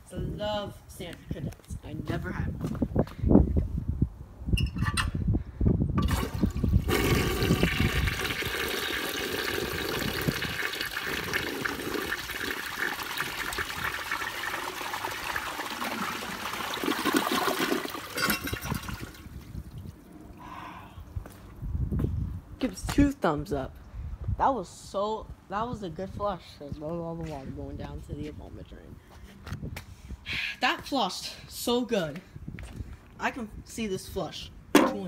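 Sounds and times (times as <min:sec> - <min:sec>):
toilet water rushing: 0:06.0 - 0:19.4.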